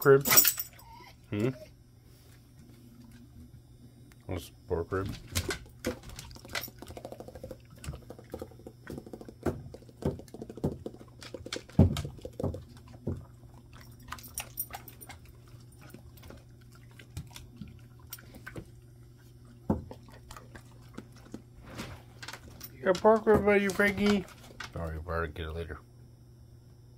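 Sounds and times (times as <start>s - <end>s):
dogs eating clicks and smacks: 5.0s - 21.5s, 22.2s - 24.8s.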